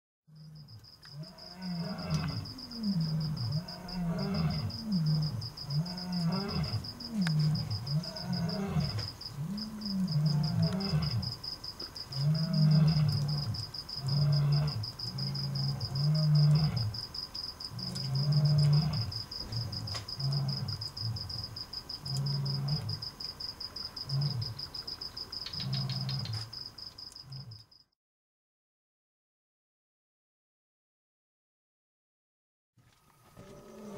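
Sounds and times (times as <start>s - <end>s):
insect trill: 0.3s - 28.0s, 32.8s - 33.9s
lion roaring: 1.1s - 11.3s, 12.2s - 17.0s, 17.7s - 21.4s, 33.2s - 33.9s.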